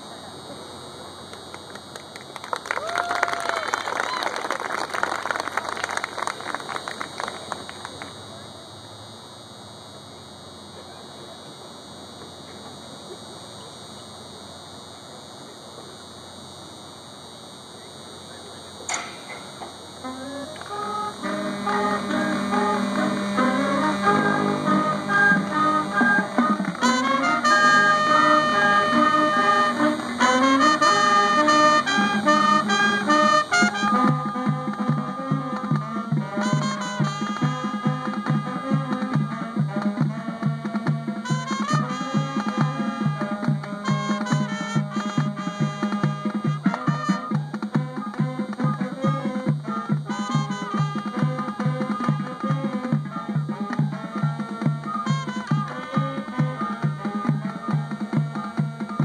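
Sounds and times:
marching band playing: 19.0 - 59.0
pulsing low bass notes: 20.8 - 46.7.

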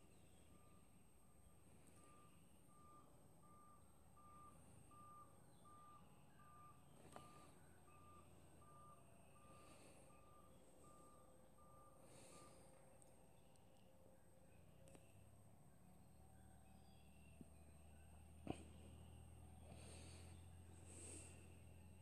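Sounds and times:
faint electronic beeping: 0.0 - 22.0.

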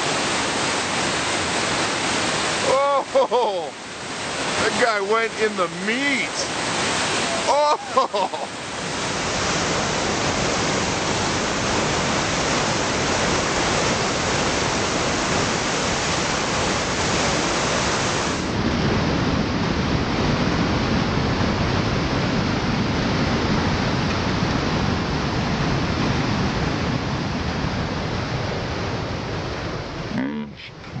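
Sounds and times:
whitewater rapid rushing: 0.0 - 18.6.

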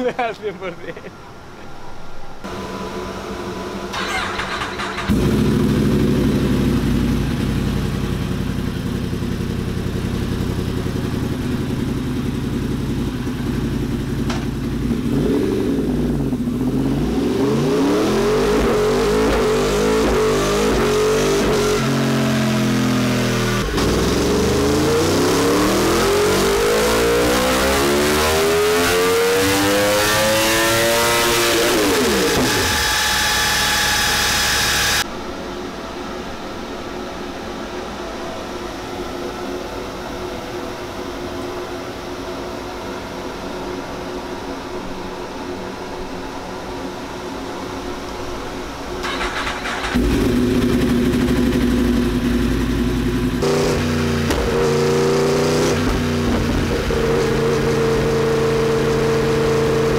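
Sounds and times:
motorcycle engine revving on dyno: 2.5 - 35.1, 49.1 - 59.9.

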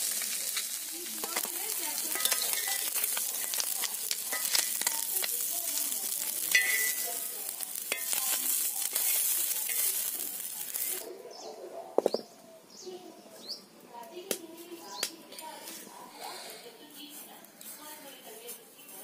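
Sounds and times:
fish sizzling in oil: 0.0 - 11.1
metal spatula scraping a pan: 1.2 - 11.0.

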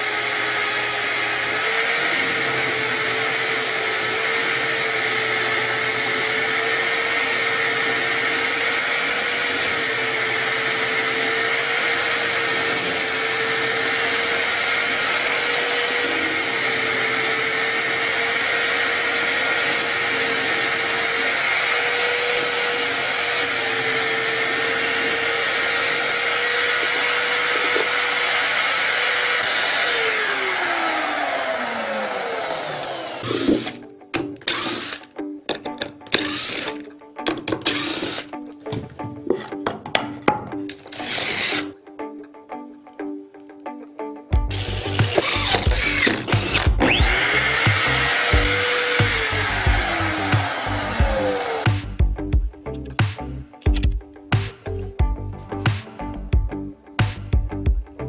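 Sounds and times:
plywood sanded on spinning disc: 0.0 - 33.6, 44.5 - 51.9
electric drill motor running: 0.0 - 33.8, 34.5 - 35.1, 36.2 - 36.8, 37.6 - 38.3, 40.9 - 41.7, 44.4 - 51.9.

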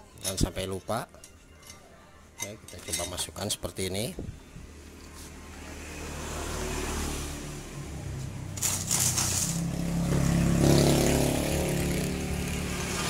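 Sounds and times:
scraping rustle: 8.6 - 9.8.

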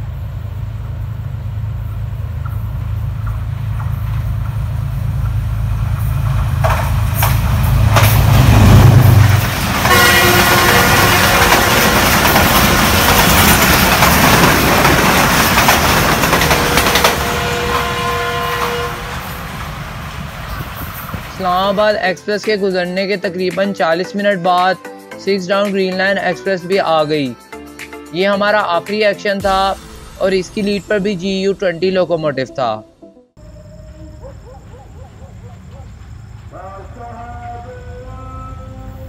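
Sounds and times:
locomotive engine drone: 0.0 - 21.8, 33.4 - 39.0
train coaches rushing by: 0.1 - 23.8, 33.4 - 39.0.

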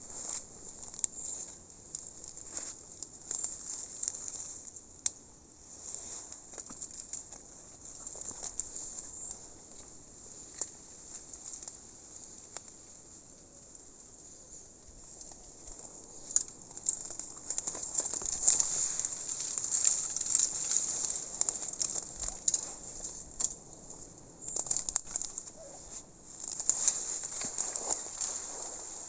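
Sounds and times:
footsteps crunching through leaf litter: 15.8 - 29.0.

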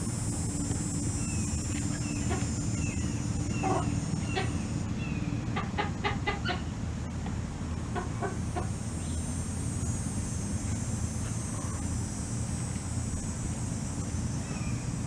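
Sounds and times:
steady low rumble: 0.0 - 15.0
chickens clucking: 1.8 - 6.7, 7.9 - 8.8.

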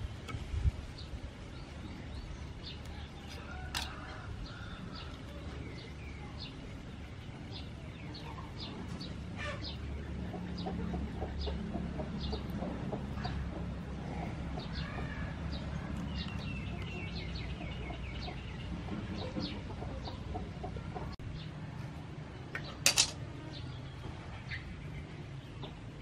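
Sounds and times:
birds calling: 0.0 - 21.5
low steady background noise: 0.0 - 26.0
chickens clucking: 2.4 - 21.2.

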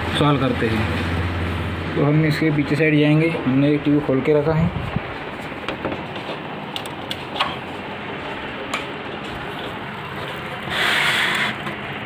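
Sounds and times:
rubbing scrape: 10.7 - 11.6.

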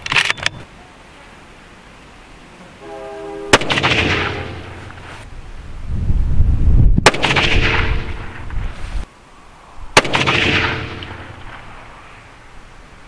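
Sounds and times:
rifle shots with echo: 3.5 - 5.0, 7.0 - 8.5, 10.0 - 11.5.

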